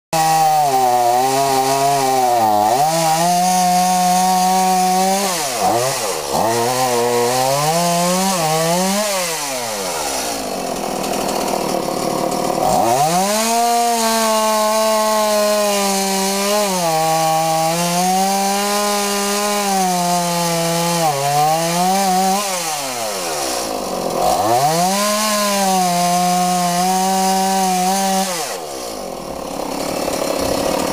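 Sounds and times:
chainsaw cutting wood: 0:00.1 - 0:30.9.

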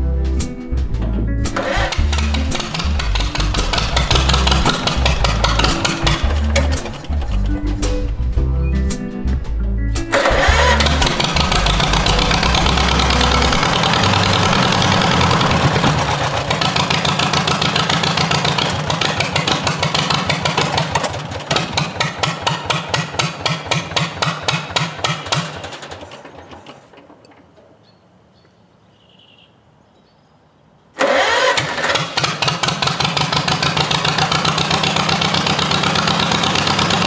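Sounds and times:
background music: 0:00.0 - 0:18.6
two-cylinder engine running: 0:01.0 - 0:08.6, 0:10.1 - 0:27.4, 0:31.0 - 0:37.0.

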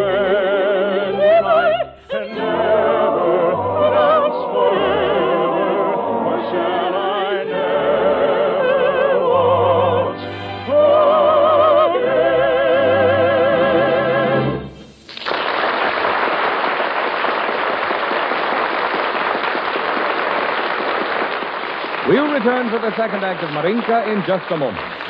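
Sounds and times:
operatic singing voice: 0:00.0 - 0:14.7
orchestra: 0:00.0 - 0:15.1.

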